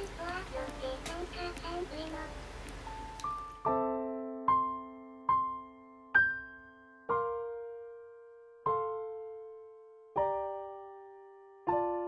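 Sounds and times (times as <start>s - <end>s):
gentle solo piano: 2.8s - 12.0s.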